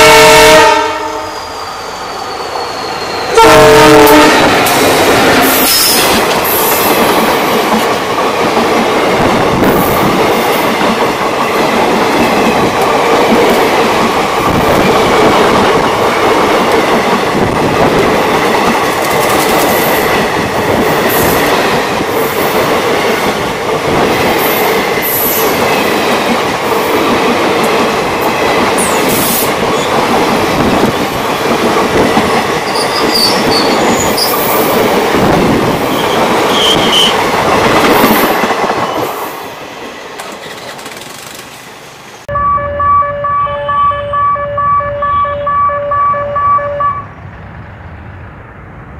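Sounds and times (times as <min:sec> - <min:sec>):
train coaches rumbling past: 0:00.0 - 0:48.9
high wheel squeals: 0:01.1 - 0:03.4, 0:32.6 - 0:34.6, 0:35.9 - 0:37.2.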